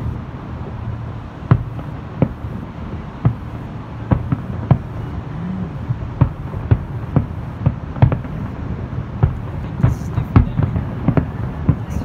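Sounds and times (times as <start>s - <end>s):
fireworks booming: 0.0s - 12.0s
steady low rumble: 0.0s - 12.0s.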